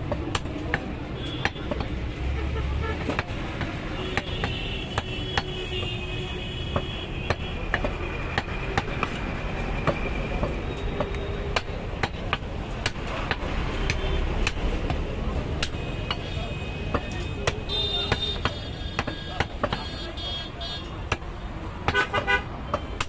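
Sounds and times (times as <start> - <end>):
cleaver chopping on wooden block: 0.0 - 2.0, 3.0 - 5.5, 6.7 - 9.2, 16.9 - 19.9.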